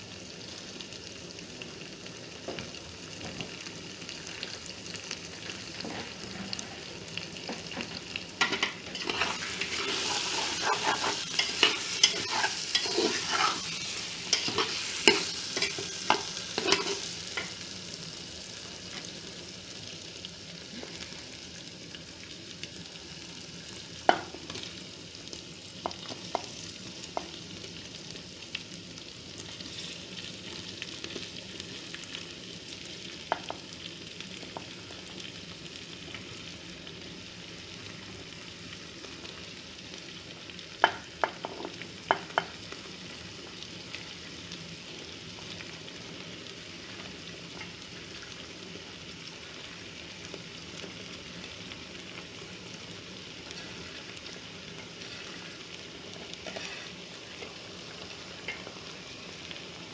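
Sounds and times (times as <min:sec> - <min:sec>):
food sizzling in pot: 0:00.0 - 0:59.9
spatula scraping metal pot: 0:09.0 - 0:13.7.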